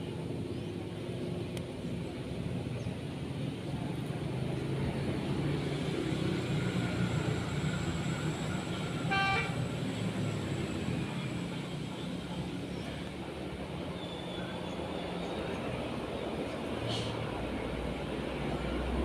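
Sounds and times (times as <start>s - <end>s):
traffic hum: 0.0s - 19.0s
car horn toot: 9.1s - 9.6s.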